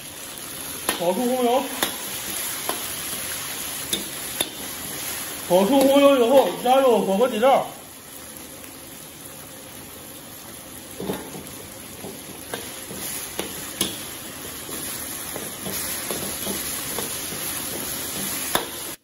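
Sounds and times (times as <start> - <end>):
oil sizzling in a wok: 0.0 - 19.0.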